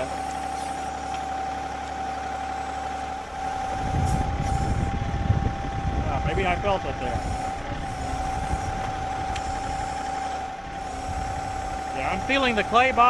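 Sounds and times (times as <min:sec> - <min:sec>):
backhoe digging in muck: 0:00.0 - 0:05.0, 0:06.8 - 0:13.0
steady whine: 0:00.0 - 0:13.0
tractor diesel engine running: 0:00.0 - 0:13.0
deep rumble: 0:03.2 - 0:12.0.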